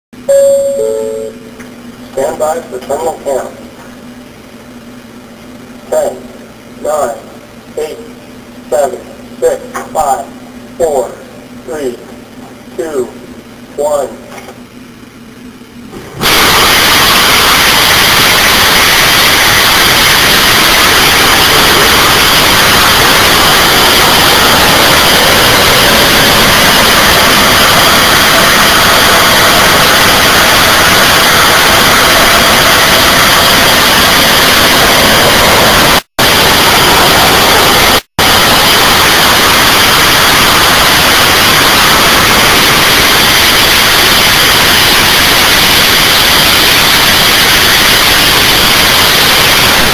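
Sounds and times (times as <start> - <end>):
rocket engine roaring: 15.9 - 49.9.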